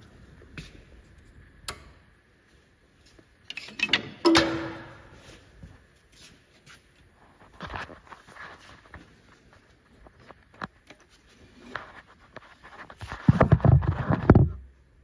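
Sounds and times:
ringing metallic clank: 0:04.3 - 0:05.2.

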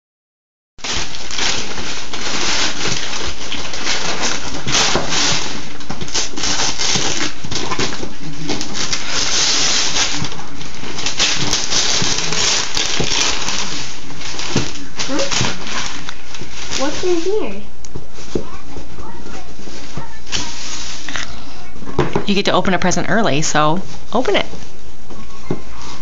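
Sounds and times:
wrapping paper tearing and crinkling: 0:00.8 - 0:21.6.

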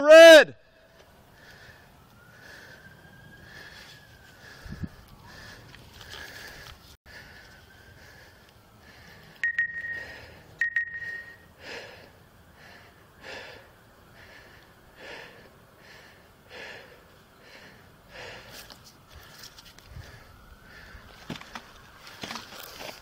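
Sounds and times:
person breathing heavily: 0:00.7 - 0:21.5
short loud beeps: 0:09.4 - 0:11.5.

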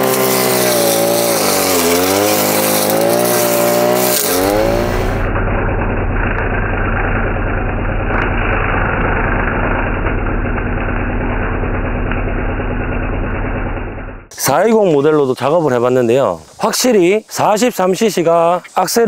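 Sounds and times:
brush cutter engine: 0:00.0 - 0:13.7.

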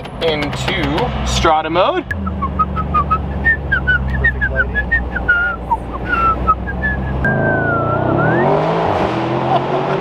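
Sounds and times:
car engine idling: 0:00.0 - 0:08.4
man whistling a tune: 0:02.1 - 0:08.6.

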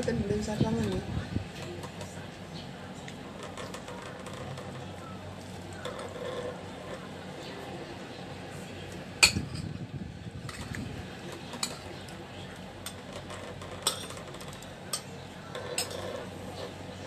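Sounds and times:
metal spoon clinking on plate: 0:12.8 - 0:16.2.

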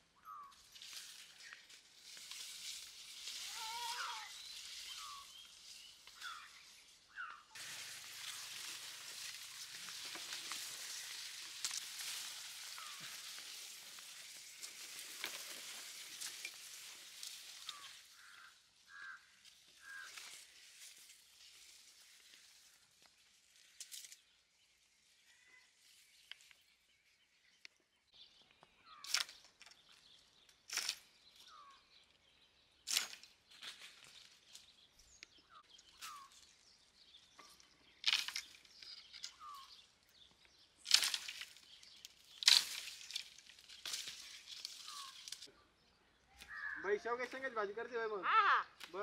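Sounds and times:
leaf rustle: 0:00.3 - 0:27.0, 0:29.0 - 0:31.8, 0:32.8 - 0:45.5
bird chirps: 0:03.5 - 0:08.7, 0:25.0 - 0:47.6.

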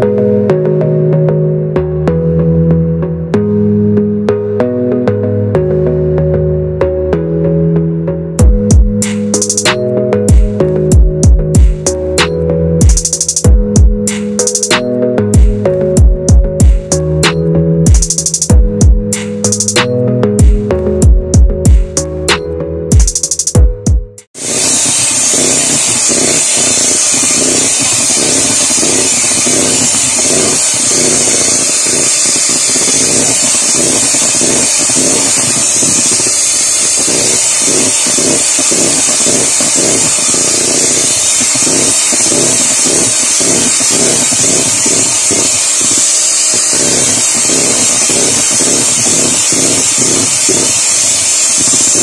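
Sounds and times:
electric hand mixer running: 0:24.3 - 0:52.0.

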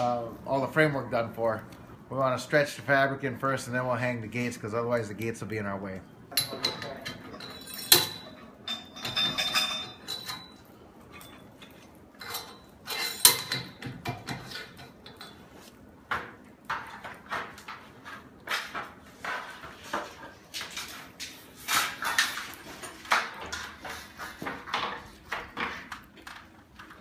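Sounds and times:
metal pipes clanking: 0:06.3 - 0:15.6.

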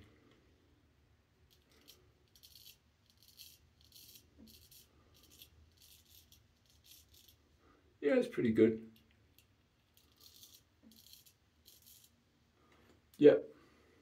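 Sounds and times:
razor scraping stubble: 0:01.5 - 0:07.4, 0:09.4 - 0:12.2.

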